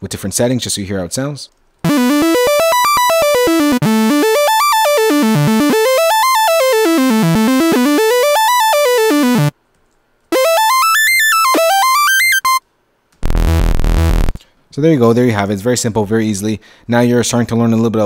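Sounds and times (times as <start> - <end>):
arpeggiated synth lead: 1.9 - 9.5, 10.4 - 12.6, 13.2 - 14.4.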